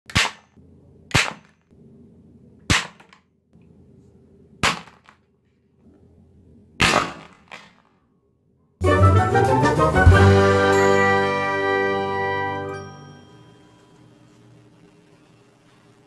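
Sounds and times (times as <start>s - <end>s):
toy dart gun bangs: 0.1s - 1.6s, 2.7s - 3.2s, 4.6s - 5.2s, 6.8s - 7.9s.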